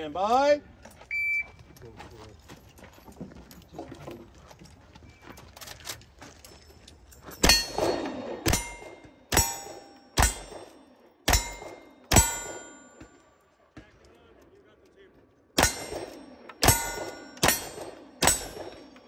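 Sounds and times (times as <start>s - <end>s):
steel target clanging: 7.2s - 13.4s, 15.6s - 19.0s
rifle shots: 7.4s - 13.0s, 15.6s - 19.0s.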